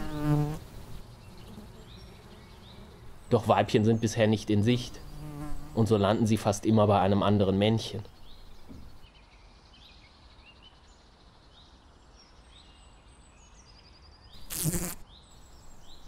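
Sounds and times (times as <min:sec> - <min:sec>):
fly wings buzzing: 0:00.0 - 0:03.2, 0:05.0 - 0:05.8, 0:14.4 - 0:15.0.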